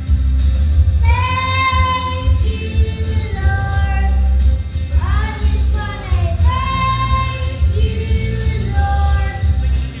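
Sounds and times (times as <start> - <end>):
recorded accompaniment with bass: 0.0 - 10.0
boy singing into a microphone: 1.0 - 4.4, 5.0 - 9.8.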